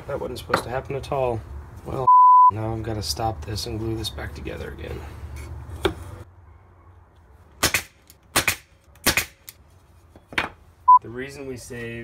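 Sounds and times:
nail gun firing into wood: 0:07.6 - 0:09.5.

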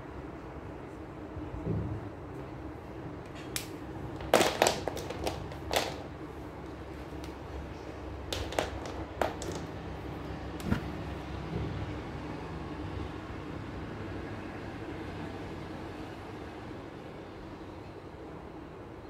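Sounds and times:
marker pens clicking and knocking: 0:03.6 - 0:06.1, 0:08.3 - 0:09.7.

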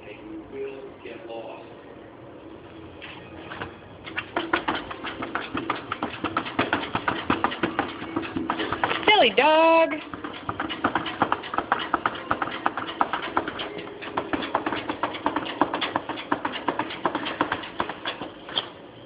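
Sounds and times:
dog claws scratching glass door: 0:04.1 - 0:09.0.

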